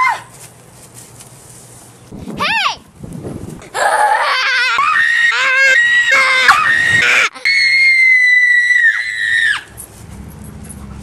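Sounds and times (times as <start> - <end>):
young boy screaming: 3.7 - 9.7.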